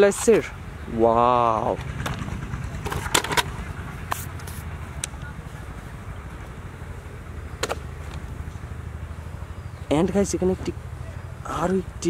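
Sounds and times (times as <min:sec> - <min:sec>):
low rumble: 0:00.6 - 0:12.0
plastic toys clicking and knocking: 0:02.0 - 0:03.5.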